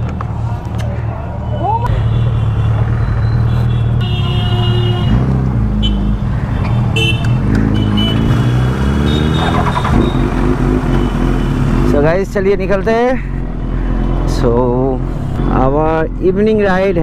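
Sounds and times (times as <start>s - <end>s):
street traffic: 0.0s - 17.0s
car horn beeps: 1.9s - 11.7s.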